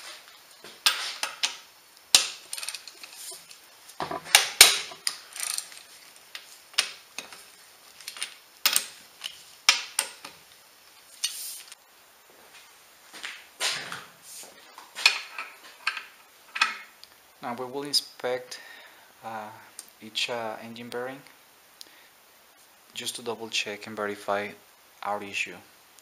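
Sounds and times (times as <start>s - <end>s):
metal parts clicking and clanking: 2.2s - 7.4s, 15.0s - 16.9s.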